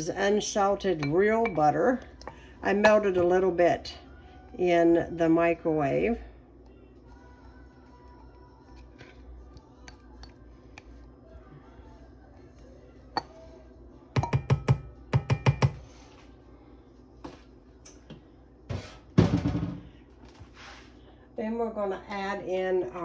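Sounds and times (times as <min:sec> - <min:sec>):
utensil knocking a bowl: 0:14.2 - 0:15.8
utensil tapping a bowl: 0:14.2 - 0:15.8.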